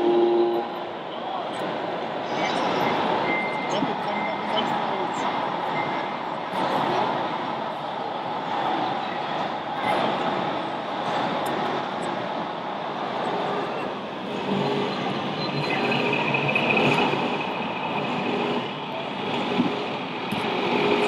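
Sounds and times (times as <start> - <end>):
murmur of busy hall: 0.0 - 21.0
simulated diesel engine running: 14.3 - 21.0.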